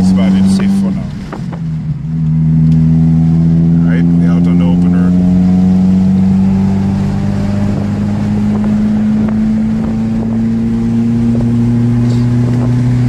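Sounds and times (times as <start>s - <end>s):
car engine droning: 0.0s - 13.0s
wind noise: 5.4s - 13.0s.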